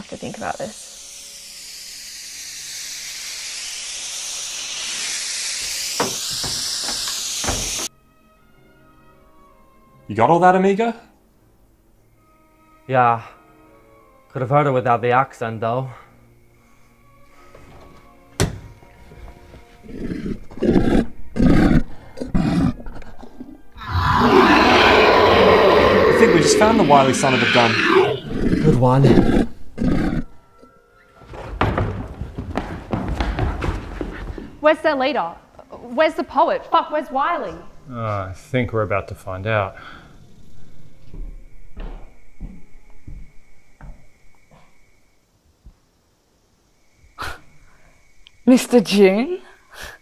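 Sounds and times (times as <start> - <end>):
high-pitched spray hiss: 0.0 - 7.9, 23.9 - 28.3
monster growls: 19.8 - 23.0, 23.8 - 30.3
monster roaring: 19.9 - 21.8, 23.8 - 30.2.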